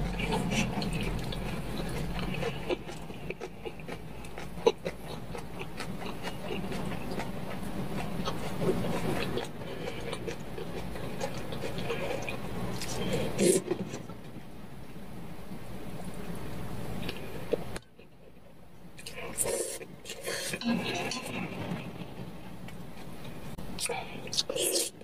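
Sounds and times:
chopsticks stirring noodles: 19.4s - 22.2s.

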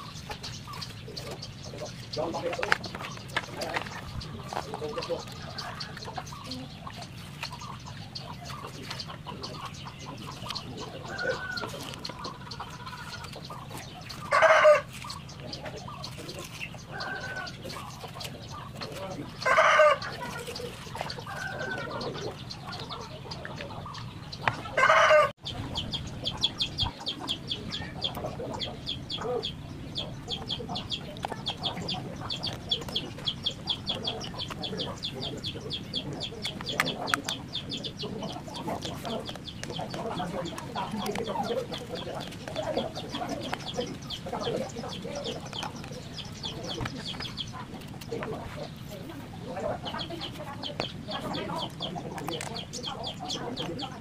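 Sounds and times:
hens clucking: 0.0s - 54.0s
rooster crowing: 14.3s - 14.9s, 19.4s - 20.2s, 24.7s - 25.4s.

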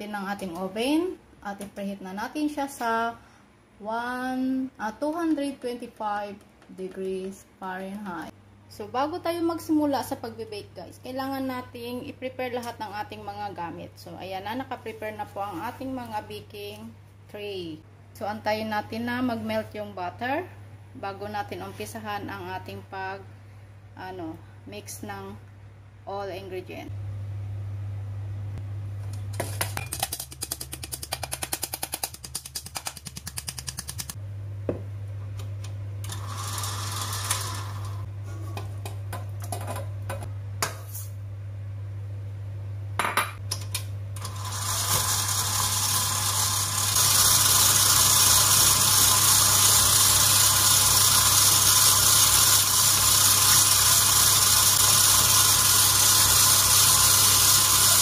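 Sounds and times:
mesh sieve tapped rapidly: 29.9s - 34.2s
stand mixer running: 36.1s - 38.1s, 44.2s - 58.0s.

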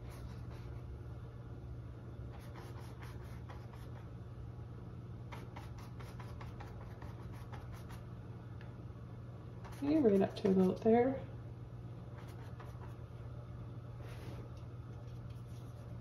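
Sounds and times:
steady low hum: 0.0s - 16.0s
paintbrush scratching on canvas: 2.3s - 4.1s, 5.3s - 8.0s, 9.6s - 10.8s, 12.2s - 13.0s.

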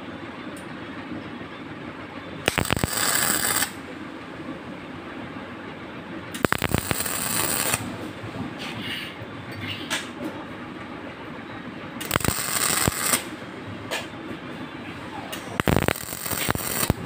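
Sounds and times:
welder sharp clicks: 2.5s - 3.7s, 6.4s - 7.8s, 12.0s - 13.3s, 15.3s - 17.0s
arc welding crackling hiss: 2.5s - 3.8s, 6.4s - 7.8s, 12.0s - 13.3s, 15.6s - 17.0s.

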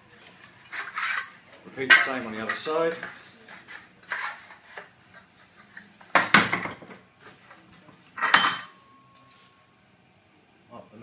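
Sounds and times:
knocks and clatter on workbench: 6.1s - 7.0s
sharp metallic clang: 8.2s - 9.0s.

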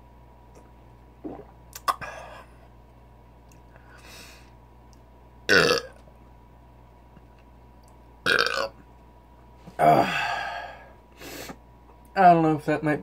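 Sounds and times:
man burping loudly: 5.5s - 5.9s, 8.2s - 8.8s.

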